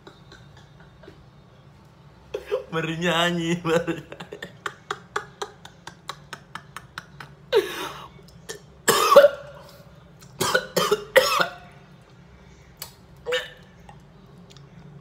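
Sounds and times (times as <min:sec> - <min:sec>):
cough-like vocal bursts: 0:08.5 - 0:09.5, 0:10.4 - 0:11.6.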